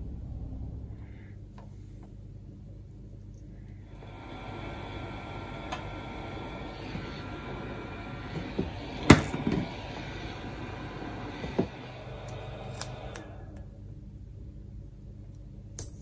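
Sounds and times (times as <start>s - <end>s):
heat gun blowing: 3.9s - 13.6s.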